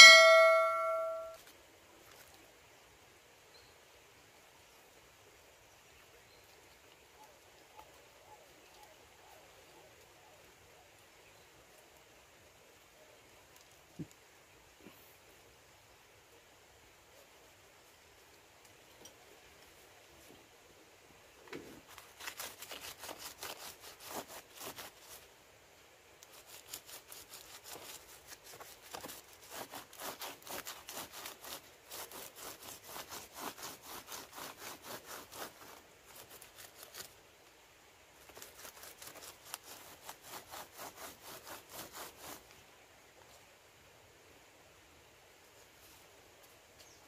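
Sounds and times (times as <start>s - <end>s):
palm leaf rustling and crackling: 0.2s - 2.5s, 12.8s - 14.9s, 21.6s - 25.4s, 26.1s - 37.6s, 38.2s - 43.5s.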